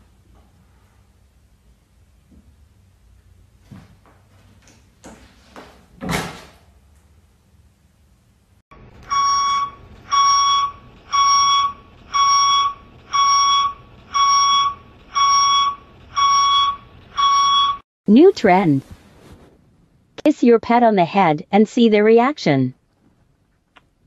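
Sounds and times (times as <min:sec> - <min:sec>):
electronic alarm beeping: 0:09.0 - 0:17.8.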